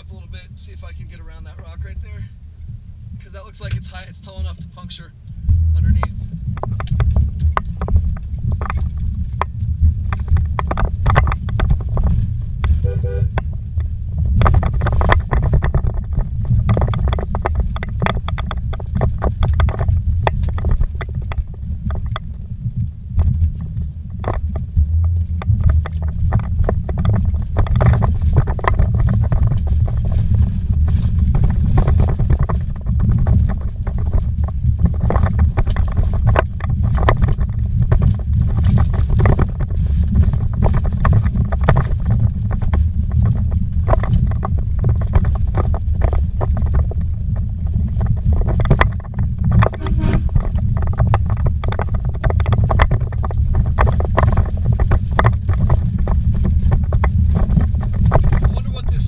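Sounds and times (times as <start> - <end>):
engine and tyres rumbling: 0.0 - 59.0
vehicle knocking and rattling: 0.0 - 59.0.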